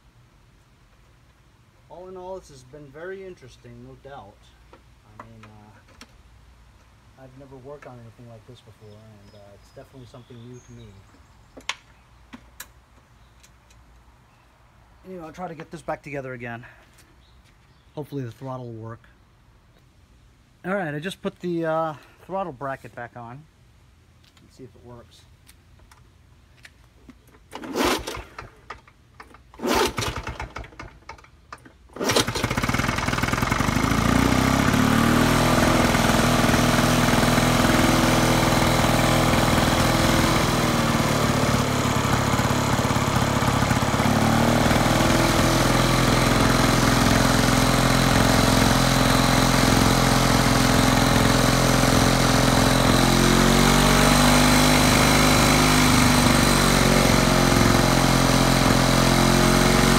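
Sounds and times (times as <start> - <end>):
recoil starter pulls: 27.2 - 59.9
lawn mower engine running: 27.3 - 59.9.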